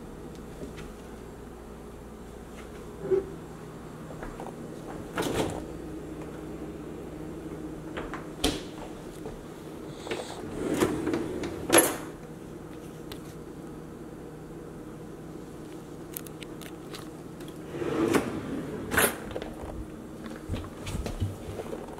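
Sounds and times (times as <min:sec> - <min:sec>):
cutlery drawer sliding open: 0:10.2 - 0:12.1, 0:17.6 - 0:19.7.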